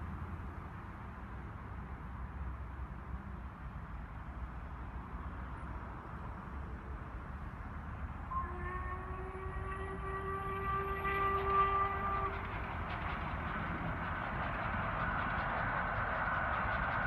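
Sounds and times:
train running noise: 0.0s - 17.0s
steam whistle blast: 8.3s - 12.4s.

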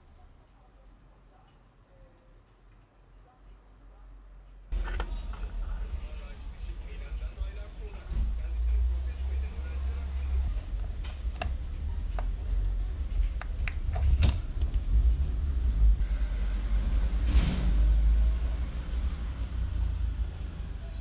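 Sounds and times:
steady low rumble: 4.2s - 21.0s
small tools clicking on watch: 10.8s - 21.0s.

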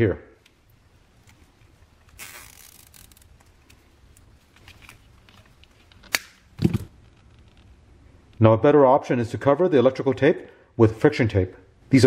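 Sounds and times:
zip tie rasping through ratchet: 2.0s - 3.4s.

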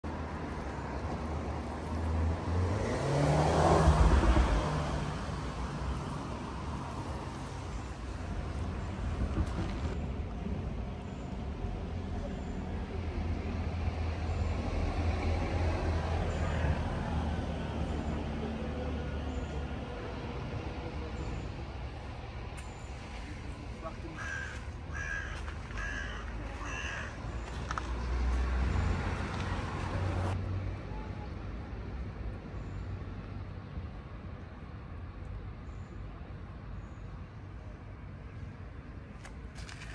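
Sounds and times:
vehicle passing by: 0.0s - 10.0s, 12.0s - 30.9s
distant traffic rumble: 0.0s - 39.9s
crow cawing: 24.1s - 27.5s.

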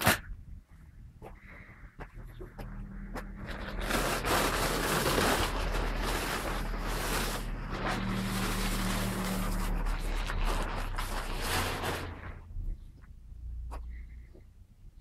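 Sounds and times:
plastic tarpaulin rustling: 0.0s - 0.4s, 3.0s - 12.8s.

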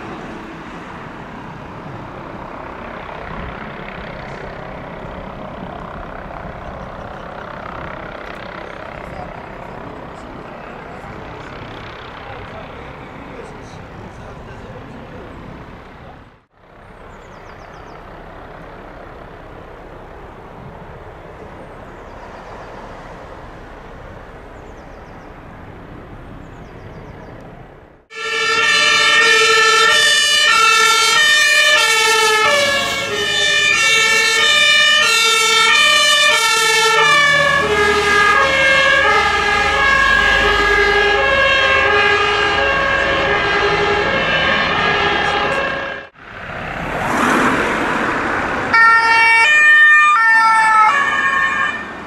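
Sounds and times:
heavy diesel engines rumbling: 0.0s - 52.0s
road traffic: 0.0s - 52.0s
two-tone fire engine sirens: 28.1s - 46.2s, 48.3s - 52.0s.

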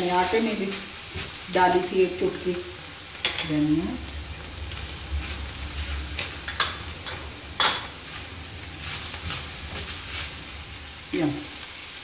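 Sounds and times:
meat sizzling in a pan: 0.0s - 12.0s
spatula stirring and scraping: 0.2s - 2.0s, 4.1s - 11.7s.

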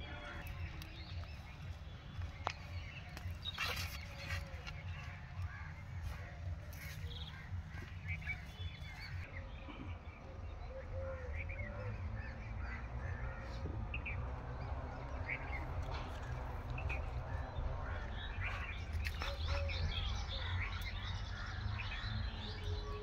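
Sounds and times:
steady low rumble: 0.0s - 9.4s
birds chirping: 0.0s - 23.0s.

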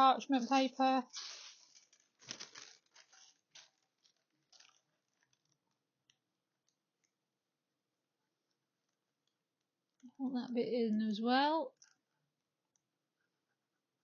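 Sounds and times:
parchment paper rustling: 0.0s - 7.3s.

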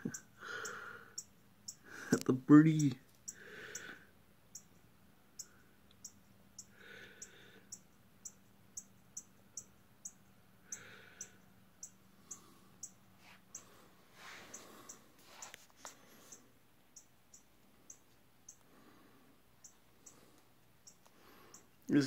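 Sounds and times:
bird chip calls: 0.0s - 2.0s.

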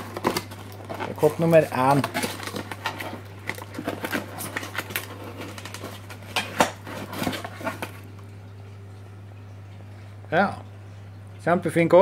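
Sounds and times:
cardboard box rustling and scraping: 0.0s - 8.0s.

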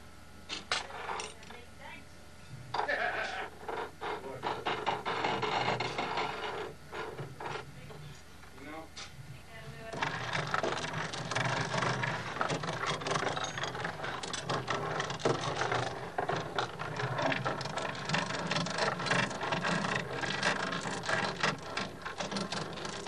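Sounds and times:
steady low hum: 0.0s - 23.0s
steel chain rattling: 10.0s - 23.0s.

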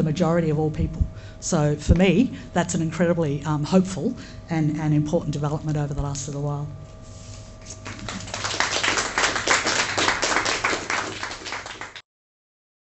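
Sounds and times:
audience applauding: 7.8s - 12.0s.

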